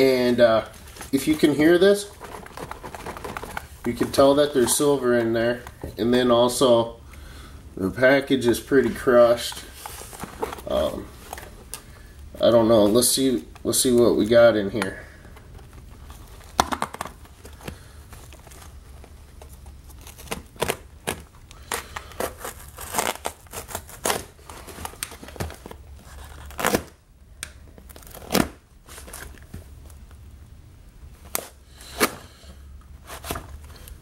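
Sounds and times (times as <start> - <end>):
packing tape tearing from cardboard: 0.8 - 5.8, 15.6 - 27.0, 27.7 - 29.5, 31.2 - 34.0.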